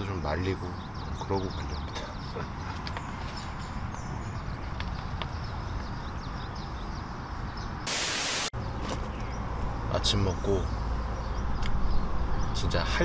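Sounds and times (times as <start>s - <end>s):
loud hiss: 7.9s - 8.5s.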